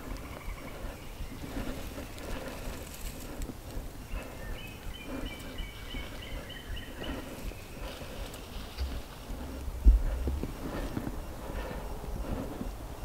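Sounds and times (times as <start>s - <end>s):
low outdoor rumble: 0.0s - 13.0s
songbird singing: 0.0s - 13.0s
soft thumps: 8.8s - 11.1s.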